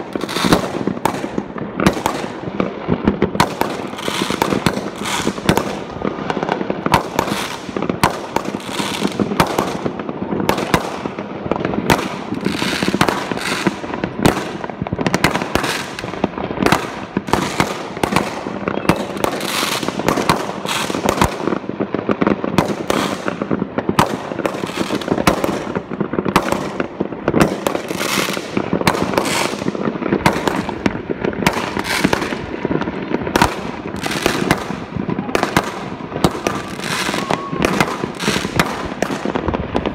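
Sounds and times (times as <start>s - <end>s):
fireworks bangs and crackles: 0.0s - 39.9s.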